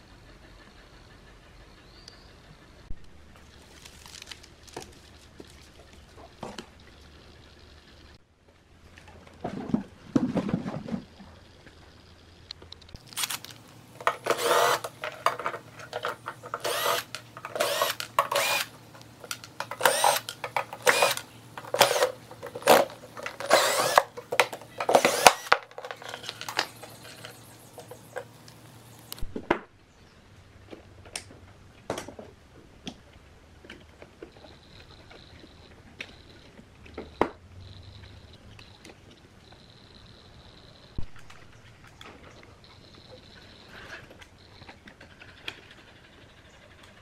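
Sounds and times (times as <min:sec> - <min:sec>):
cordless drill running: 0:13.9 - 0:15.0, 0:16.5 - 0:28.1.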